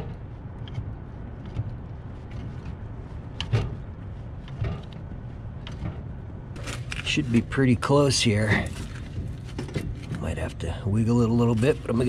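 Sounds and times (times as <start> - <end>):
metallic clicks and knocks: 0.0 - 7.2
steady low rumble: 0.0 - 12.0.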